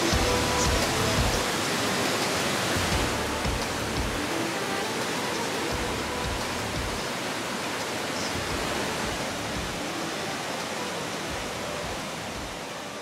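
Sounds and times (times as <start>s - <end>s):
waterfall pouring and splashing: 0.0s - 13.0s.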